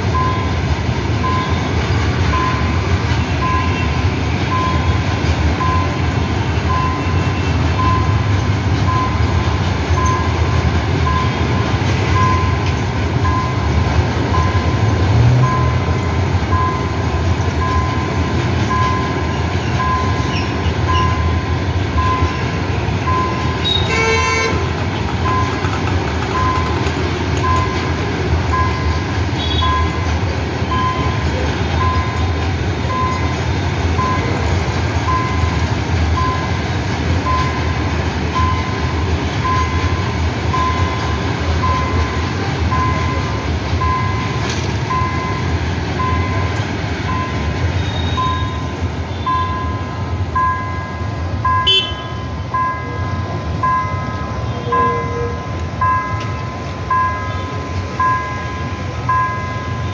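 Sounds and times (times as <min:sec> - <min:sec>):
train rumbling past: 0:00.0 - 0:59.9
train horn toot: 0:23.6 - 0:24.7, 0:29.4 - 0:29.8, 0:51.6 - 0:52.3, 0:54.5 - 0:55.5
faint high beep: 0:47.1 - 0:55.4.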